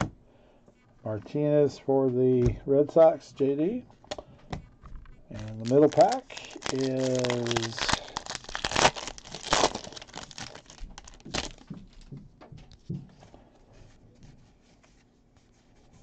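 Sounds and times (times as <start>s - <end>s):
cards rustling and clicking: 5.3s - 12.0s
foil wrapper crinkling and tearing: 5.4s - 11.7s.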